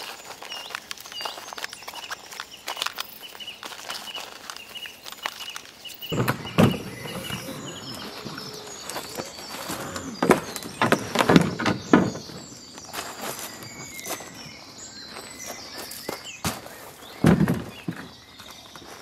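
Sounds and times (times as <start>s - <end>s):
birds chirping: 0.0s - 19.0s
footsteps crunching on shingle: 0.0s - 19.0s
gear knocking in canoe: 6.1s - 12.8s.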